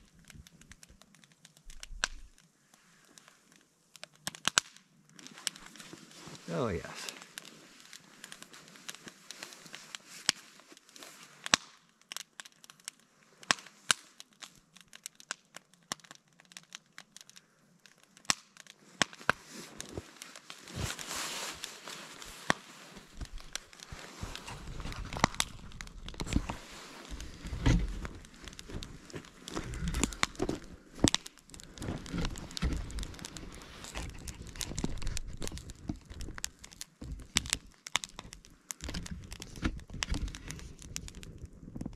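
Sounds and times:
wood fire crackling and popping: 0:00.0 - 0:41.9
low rumble: 0:24.3 - 0:30.9.

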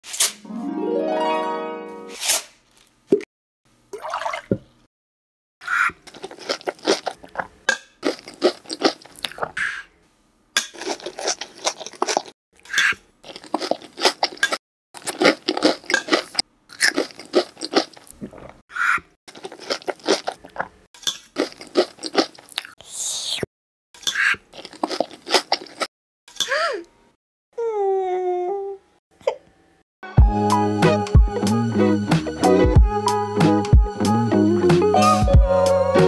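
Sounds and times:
chewing crunchy cereal: 0:06.0 - 0:09.6, 0:10.6 - 0:12.4, 0:13.2 - 0:18.6, 0:19.3 - 0:22.8, 0:24.5 - 0:25.9.

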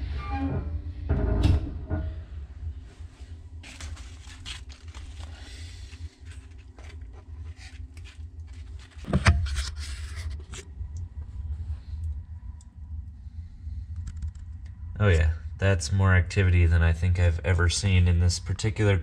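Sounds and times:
steady low hum: 0:00.0 - 0:19.0
paper towel rustling: 0:03.2 - 0:10.5.

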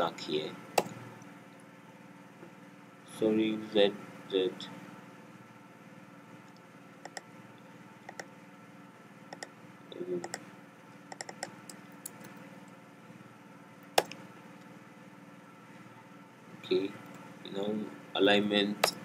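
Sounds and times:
computer keyboard keystrokes: 0:11.1 - 0:11.5.

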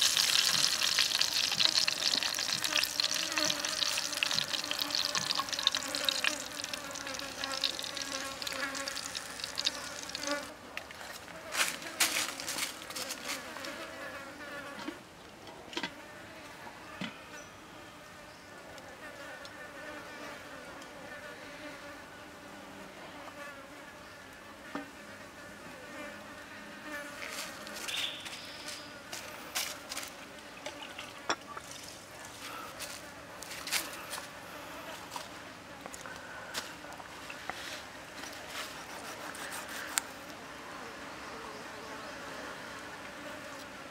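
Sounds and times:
flying insect buzzing: 0:00.0 - 0:10.6, 0:24.8 - 0:31.2.

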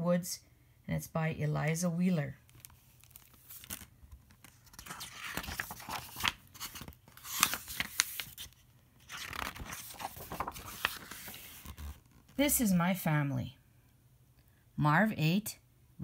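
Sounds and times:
book pages being turned: 0:02.4 - 0:12.4
paper rustling and crinkling: 0:02.4 - 0:12.4.

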